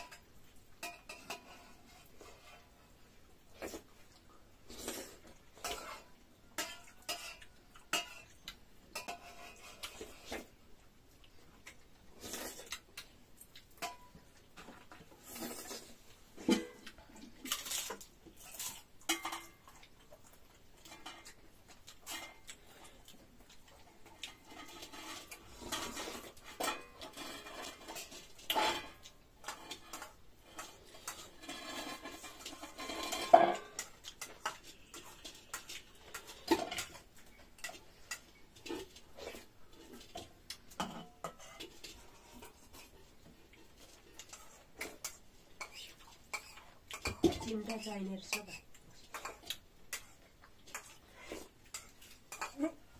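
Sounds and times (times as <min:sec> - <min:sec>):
dishes and utensils clinking: 0:00.0 - 0:02.8, 0:05.2 - 0:10.5, 0:13.7 - 0:52.9.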